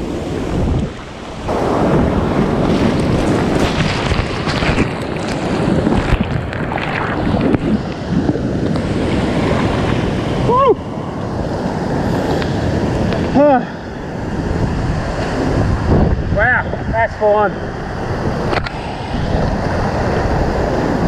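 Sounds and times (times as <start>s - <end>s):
ocean surf crashing over rocks: 0.0s - 21.0s
wind buffeting microphone: 0.0s - 21.0s.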